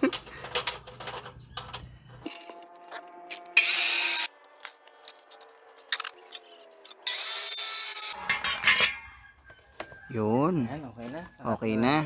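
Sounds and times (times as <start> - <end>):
cut-off saw grinding through steel: 2.5 - 4.8, 6.2 - 8.4
saw motor humming: 3.5 - 4.4.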